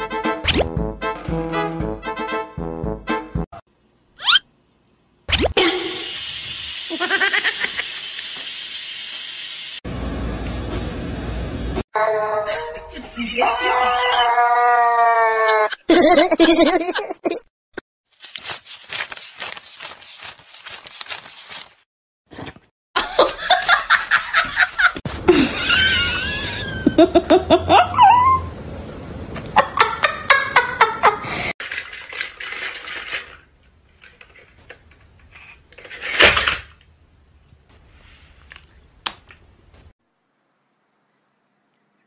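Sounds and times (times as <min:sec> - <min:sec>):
person laughing hard: 0:06.9 - 0:07.9, 0:15.2 - 0:17.4, 0:23.0 - 0:28.4, 0:29.6 - 0:31.5.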